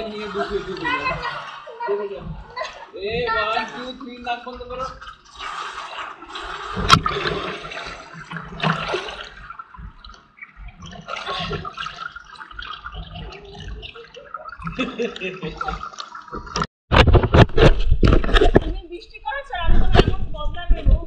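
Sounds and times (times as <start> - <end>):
pool water sloshing and splashing: 0.0 - 16.7.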